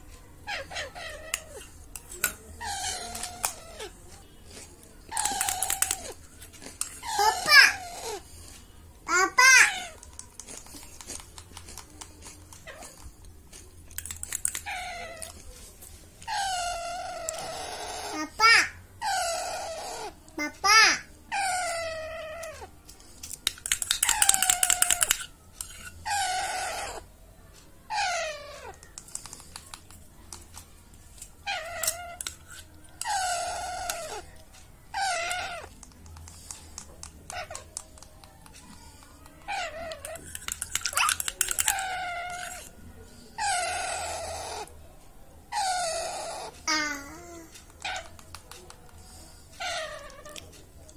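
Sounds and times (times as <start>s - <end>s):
baby parakeet begging calls: 2.6s - 4.0s, 7.0s - 8.2s, 16.3s - 22.7s, 26.0s - 27.0s, 33.0s - 34.3s
beak clicking on metal spoon: 13.9s - 14.7s, 31.8s - 33.2s, 39.9s - 41.8s
parakeet begging calls: 16.3s - 20.2s.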